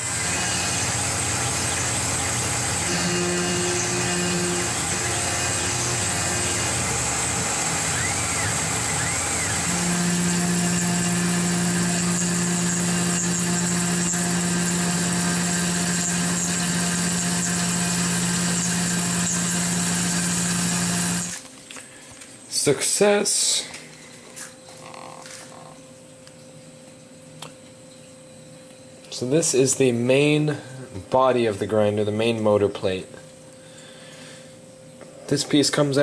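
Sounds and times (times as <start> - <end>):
milling machine cutting metal: 0.0 - 21.4.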